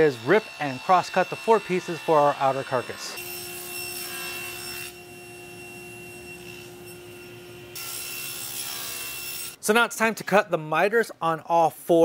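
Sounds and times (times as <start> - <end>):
table saw cutting wood: 0.0 - 9.6.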